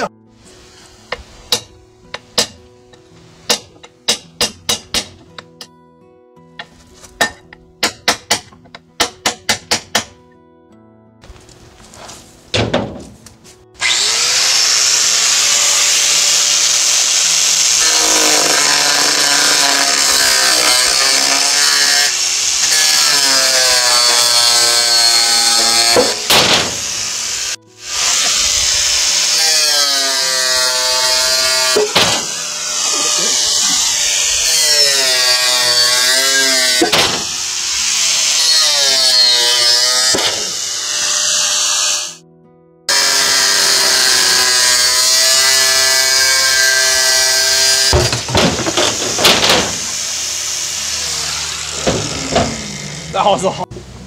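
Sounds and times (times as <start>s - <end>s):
angle grinder cutting steel: 13.8s - 42.2s, 42.9s - 53.6s.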